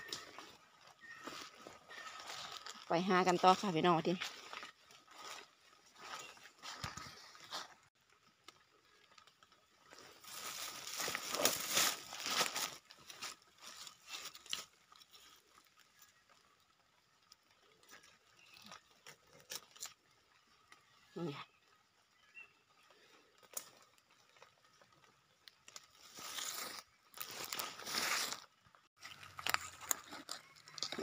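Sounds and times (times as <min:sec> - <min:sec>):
footsteps crunching through dry leaves: 0:00.0 - 0:07.9, 0:09.8 - 0:15.6, 0:25.6 - 0:31.0
low plants rustling: 0:00.0 - 0:16.6, 0:17.3 - 0:31.0
knife digging in dry leaves and soil: 0:10.1 - 0:15.4, 0:25.7 - 0:31.0.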